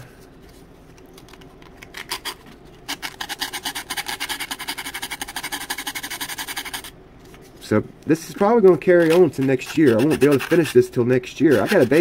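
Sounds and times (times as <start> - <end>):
hand file rasping wood: 9.0 - 10.8, 11.5 - 12.0.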